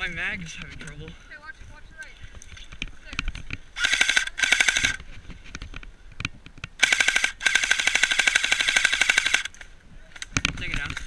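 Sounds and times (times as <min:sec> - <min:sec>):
airsoft rifle firing: 0:03.8 - 0:05.0, 0:06.8 - 0:09.5.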